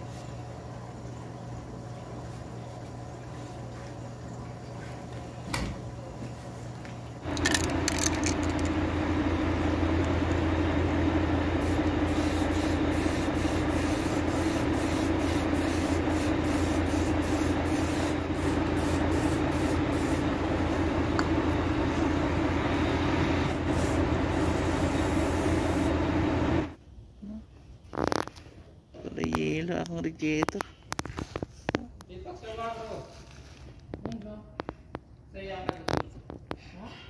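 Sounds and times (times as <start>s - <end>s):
steady low hum: 0.0s - 32.1s
spray paint can hissing: 7.3s - 8.8s, 11.6s - 20.8s, 23.5s - 26.2s.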